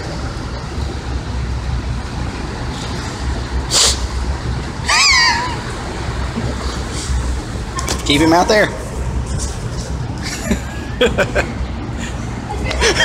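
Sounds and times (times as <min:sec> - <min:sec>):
high wavering cry: 0:04.8 - 0:05.7.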